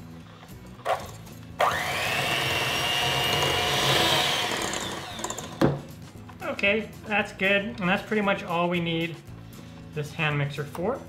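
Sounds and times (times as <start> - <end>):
electric hand mixer whining: 1.6 - 5.8.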